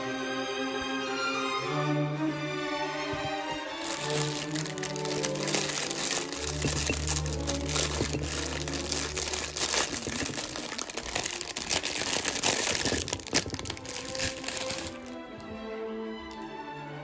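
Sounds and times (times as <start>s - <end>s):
plastic bag crinkling: 3.1s - 15.5s.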